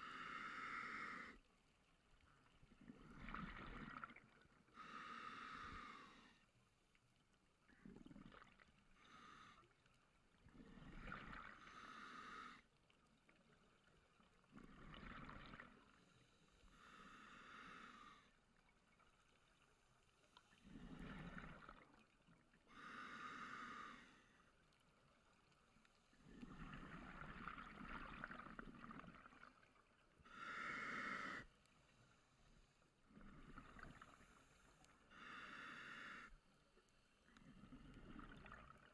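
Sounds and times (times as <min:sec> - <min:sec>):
scuba regulator inhalation: 0:00.0 - 0:01.4, 0:22.7 - 0:24.2, 0:30.3 - 0:31.5, 0:35.1 - 0:36.4.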